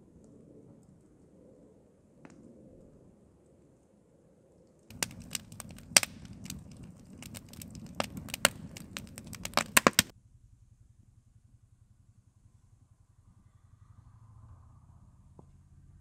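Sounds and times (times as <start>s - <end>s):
rush of flames: 4.9s - 10.1s
wood fire crackling and popping: 4.9s - 10.1s.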